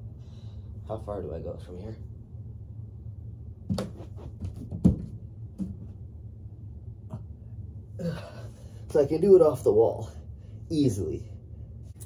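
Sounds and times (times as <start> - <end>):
body thumping against wall and floor: 3.6 - 6.0.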